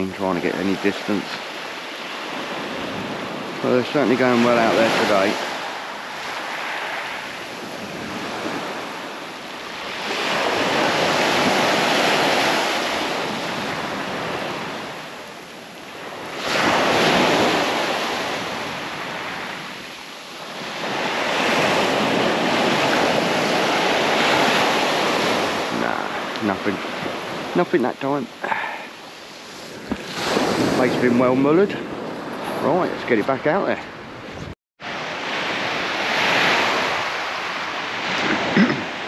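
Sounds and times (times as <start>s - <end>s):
surf breaking on beach: 0.0s - 33.7s, 34.8s - 39.0s.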